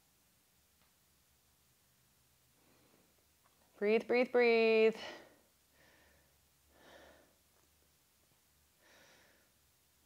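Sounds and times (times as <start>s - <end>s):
woman breathing faintly: 2.5s - 3.3s, 4.9s - 7.8s, 8.7s - 9.8s.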